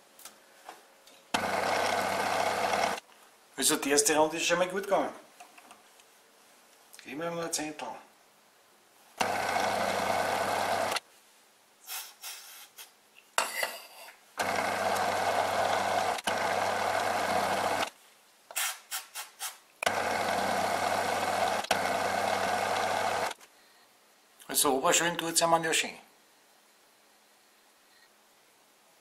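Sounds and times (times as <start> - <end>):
lathe running: 1.4 - 3.0, 9.2 - 11.0, 14.4 - 17.9, 19.8 - 23.4.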